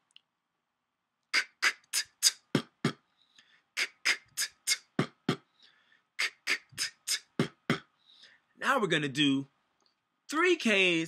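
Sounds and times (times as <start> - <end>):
beatboxing: 1.3 - 3.1, 3.8 - 5.6, 6.2 - 8.0.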